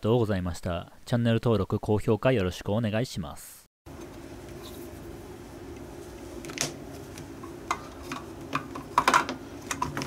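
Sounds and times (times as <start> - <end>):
steady low hum: 3.9 - 10.0.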